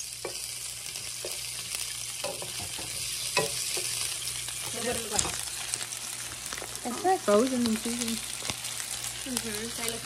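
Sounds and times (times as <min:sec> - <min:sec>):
sausage sizzling in oil: 0:00.0 - 0:10.0
wooden spatula knocking pan: 0:02.2 - 0:04.0.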